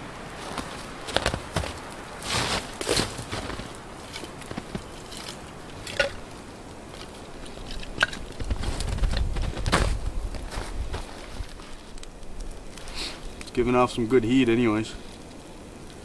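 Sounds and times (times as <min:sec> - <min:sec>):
boots crunching in snow: 0:00.4 - 0:05.3, 0:08.4 - 0:11.8.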